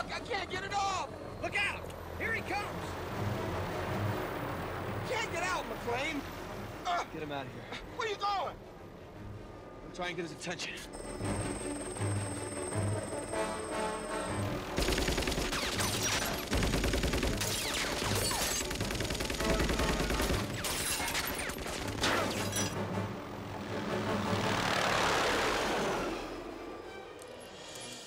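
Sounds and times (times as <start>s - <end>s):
orchestral score: 2.1s - 14.8s, 21.8s - 28.0s
automatic gunfire: 14.8s - 22.2s.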